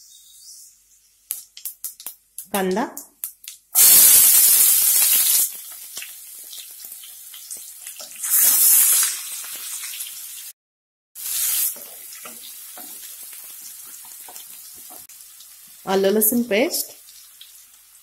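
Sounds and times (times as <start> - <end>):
onion sizzling in hot oil: 3.2 - 10.6, 11.2 - 18.0.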